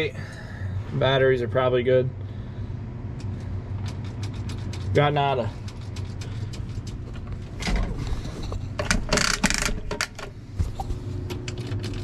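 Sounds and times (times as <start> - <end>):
steady low hum: 0.0 - 12.0
rustling and scraping: 3.3 - 11.2.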